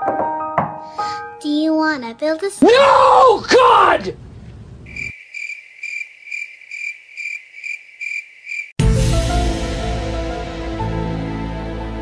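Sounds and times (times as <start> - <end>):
cricket chirping: 4.9 - 8.8
music with sustained chords: 8.8 - 12.0.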